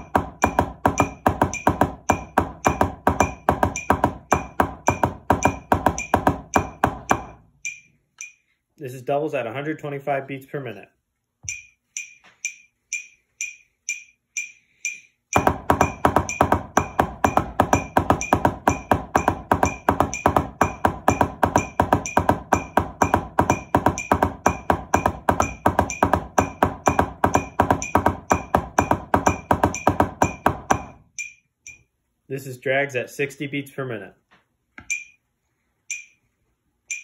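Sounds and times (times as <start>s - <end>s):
drumsticks on practice pad: 0.0s - 8.6s, 11.4s - 31.9s, 34.8s - 36.2s
metronome clicking: 7.6s - 8.5s, 11.4s - 15.4s, 31.1s - 31.9s, 34.8s - 35.2s, 35.9s - 36.2s.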